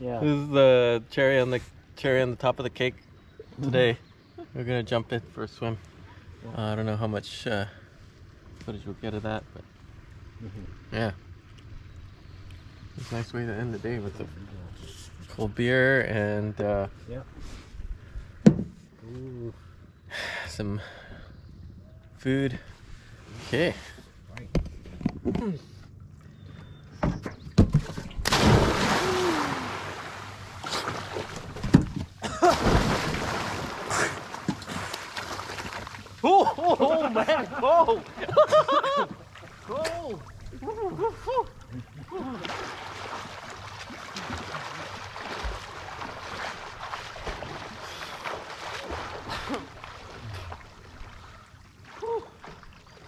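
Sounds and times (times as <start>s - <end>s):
water churning and sloshing: 25.9s - 53.0s
small splashes: 27.8s - 38.4s, 39.0s - 53.0s
big splash into water: 27.9s - 36.0s, 42.4s - 50.5s.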